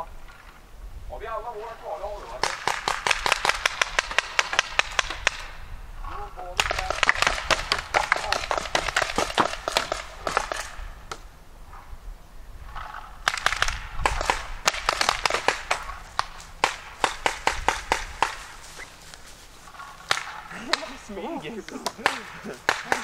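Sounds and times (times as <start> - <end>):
paintball markers firing: 2.4 - 5.5, 6.6 - 11.3, 12.8 - 18.6, 19.8 - 21.0, 21.8 - 23.0.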